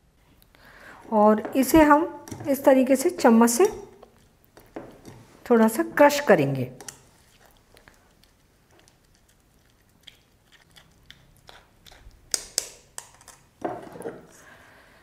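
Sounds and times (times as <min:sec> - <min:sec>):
wet squishing and scraping: 0:06.8 - 0:14.0.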